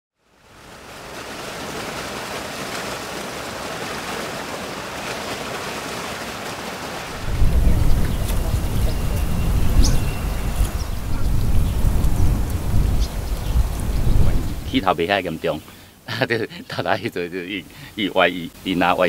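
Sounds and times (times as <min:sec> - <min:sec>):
rain hissing: 0:00.3 - 0:19.0
loud low rumble: 0:07.1 - 0:14.7.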